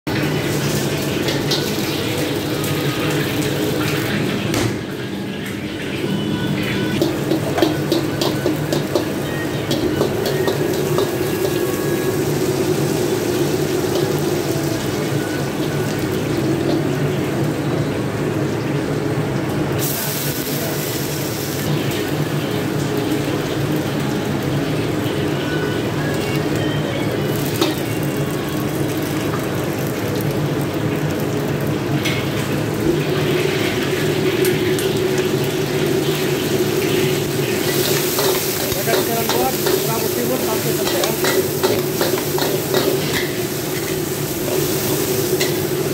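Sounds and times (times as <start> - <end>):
garlic sizzling in a wok: 0.1 - 45.9
loud hissing from hot wok: 19.8 - 22.2, 32.6 - 45.9
gas burner rushing: 31.7 - 45.9.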